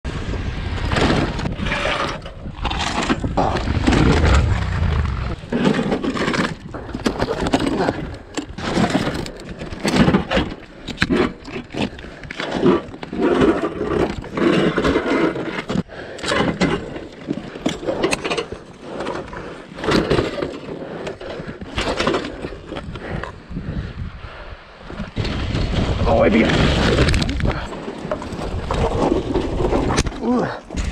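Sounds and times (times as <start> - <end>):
boots scraping on loose rock: 3.1 - 6.6.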